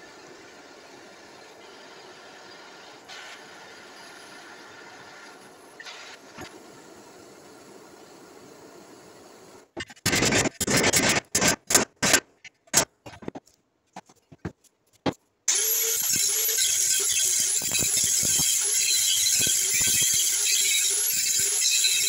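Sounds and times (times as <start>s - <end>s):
angle grinder grinding steel: 15.5s - 22.0s
welding arc crackling: 15.5s - 22.0s.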